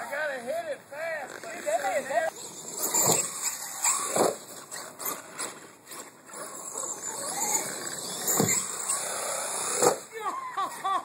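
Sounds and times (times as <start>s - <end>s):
rc truck motor whining: 2.3s - 10.1s
thump: 8.3s - 8.6s.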